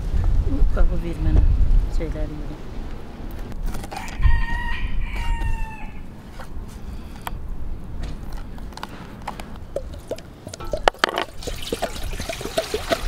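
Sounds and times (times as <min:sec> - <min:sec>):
rooster crowing: 0:03.9 - 0:06.1.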